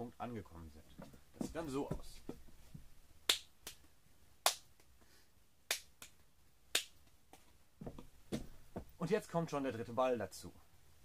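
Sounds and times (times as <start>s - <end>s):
sharp hand claps: 3.3s - 4.9s, 5.7s - 7.4s.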